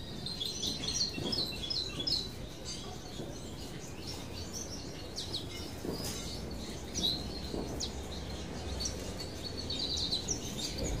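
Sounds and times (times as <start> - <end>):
finches chirping: 0.0 - 11.0.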